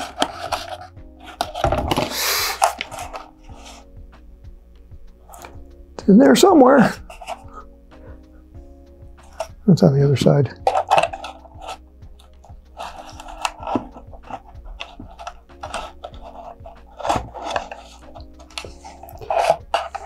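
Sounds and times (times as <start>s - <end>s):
tool scraping inside cardboard tube: 12.8s - 20.0s.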